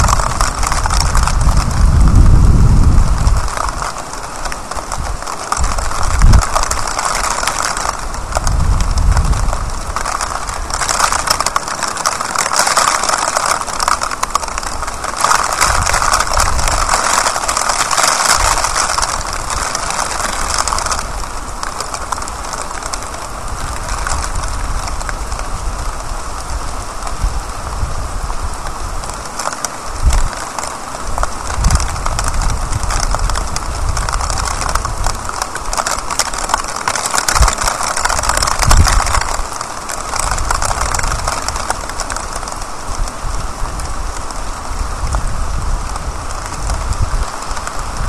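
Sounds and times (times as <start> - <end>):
low thunder rumbles: 0.0 - 3.9, 5.0 - 11.6
heavy rain on street: 0.0 - 48.0.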